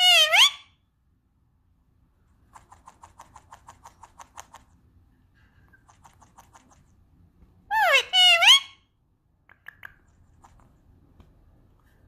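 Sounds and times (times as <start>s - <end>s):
parrot clicking: 2.5s - 4.8s, 5.8s - 7.0s, 9.4s - 10.8s.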